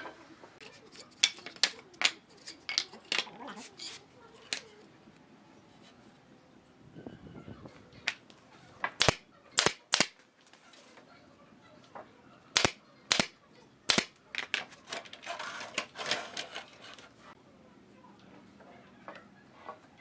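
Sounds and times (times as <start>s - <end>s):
rough scraping: 2.2s - 4.8s, 14.9s - 17.4s
nail gun shots: 9.0s - 10.2s, 12.6s - 14.2s.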